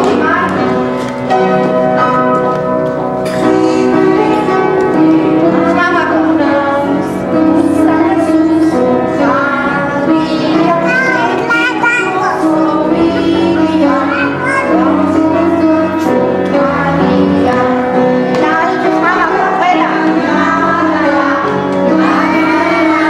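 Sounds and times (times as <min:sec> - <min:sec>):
song with musical accompaniment: 0:00.0 - 0:23.0
child singing: 0:03.3 - 0:23.0.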